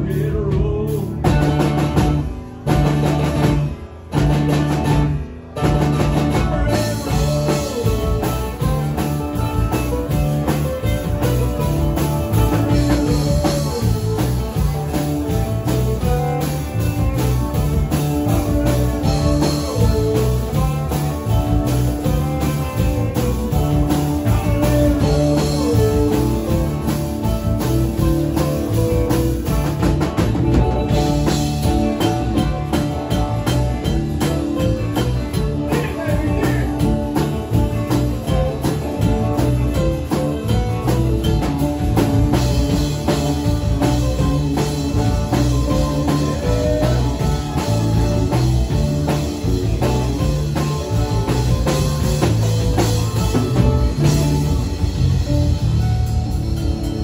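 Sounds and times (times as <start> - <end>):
country rock band playing: 0.0 - 57.0.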